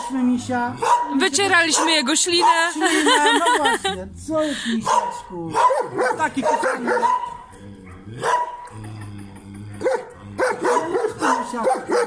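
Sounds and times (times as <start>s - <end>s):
dogs barking: 0.0s - 3.4s, 4.8s - 8.8s, 9.7s - 12.0s.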